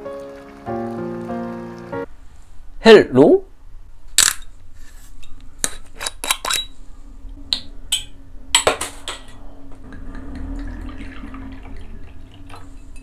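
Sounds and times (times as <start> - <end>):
bottle cap cracking open: 4.2 - 4.5
liquid pouring into a glass: 9.9 - 13.0.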